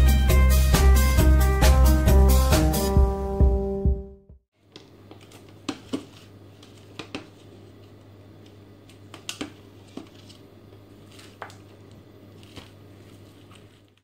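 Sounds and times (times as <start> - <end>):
plastic packaging clicks and taps: 4.8 - 7.3, 8.9 - 10.3.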